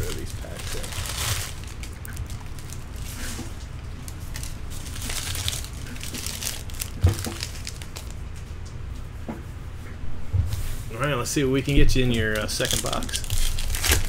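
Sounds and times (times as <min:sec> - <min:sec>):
wrappers crinkling and rustling: 0:00.0 - 0:08.5, 0:12.1 - 0:14.0.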